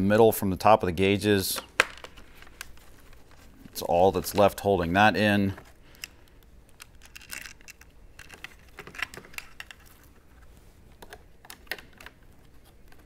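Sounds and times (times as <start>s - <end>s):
plastic and metal parts clicking: 5.6s - 10.1s.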